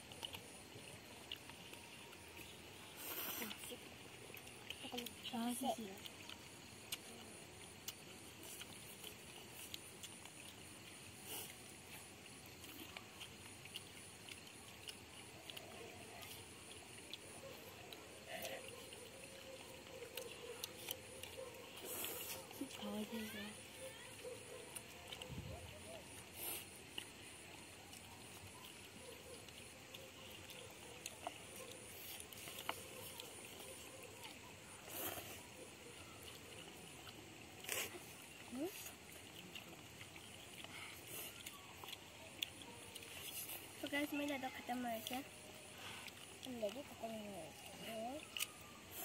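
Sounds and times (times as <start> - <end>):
children eating noodles: 0.0 - 49.0
faint outdoor background: 0.0 - 49.0
faint ticks: 0.0 - 49.0
low steady hiss: 0.0 - 49.0
noodle slurp: 37.5 - 42.1.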